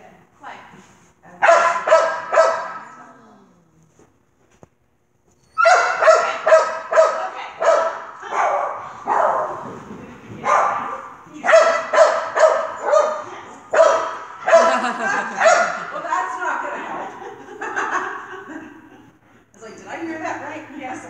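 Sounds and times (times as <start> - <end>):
dog barking: 1.4 - 3.0, 5.6 - 9.7, 10.4 - 15.9.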